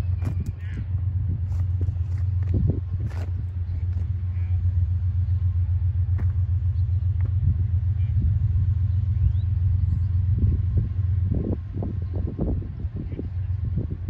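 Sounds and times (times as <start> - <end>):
distant diesel locomotive rumble: 0.0 - 14.0.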